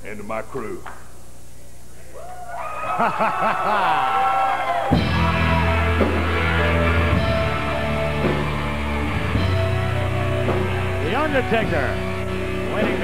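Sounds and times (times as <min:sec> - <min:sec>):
heavy rock music: 0:04.9 - 0:13.0.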